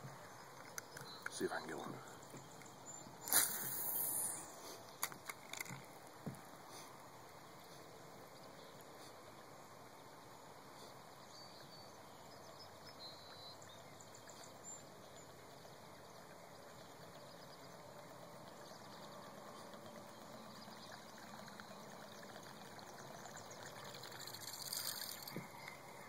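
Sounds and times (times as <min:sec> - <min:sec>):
fishing lure churning water: 0:03.2 - 0:05.8, 0:17.0 - 0:26.0.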